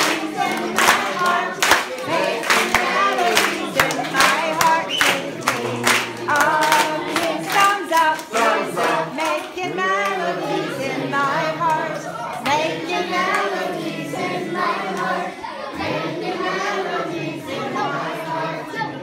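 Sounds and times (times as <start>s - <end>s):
people clapping in a beat: 0.0s - 15.2s
children singing: 0.0s - 19.0s.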